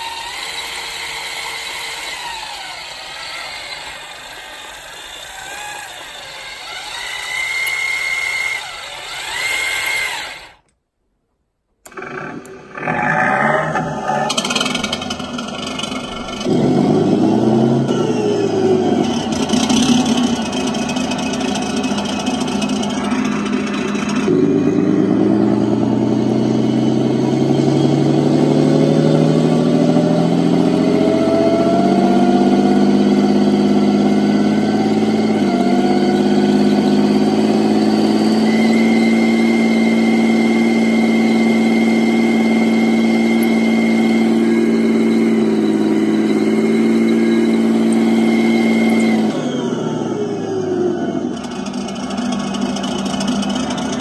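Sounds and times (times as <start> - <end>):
electric motor whine: 0.0 - 10.6, 11.9 - 54.0
tank engine sound from speaker: 11.8 - 54.0.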